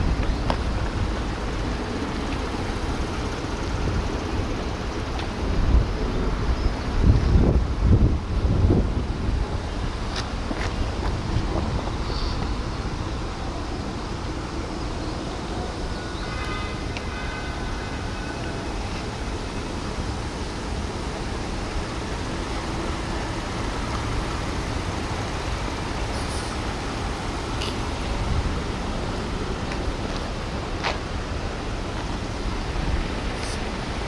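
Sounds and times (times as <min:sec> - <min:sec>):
distant city traffic rumble: 0:00.0 - 0:34.0
wind on microphone: 0:05.3 - 0:13.6.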